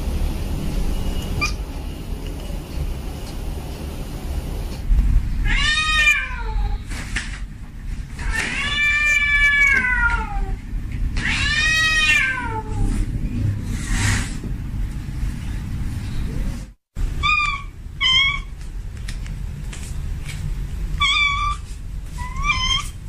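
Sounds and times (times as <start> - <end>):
steady low rumble: 0.0 - 5.8, 12.6 - 17.2
cat yowling: 5.4 - 6.8, 11.2 - 12.9, 17.2 - 18.5, 21.0 - 21.6, 22.2 - 23.0.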